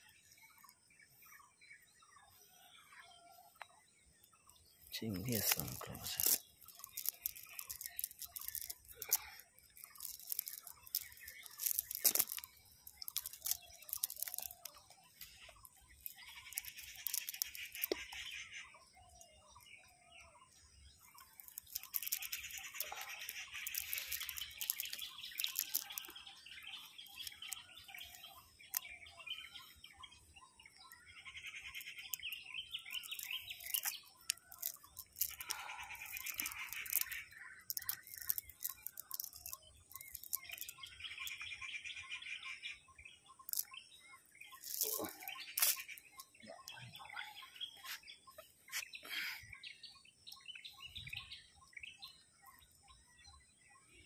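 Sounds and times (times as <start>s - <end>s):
dry leaves crunching: 5.0s - 15.4s
nylon net mesh rustling: 5.1s - 14.8s.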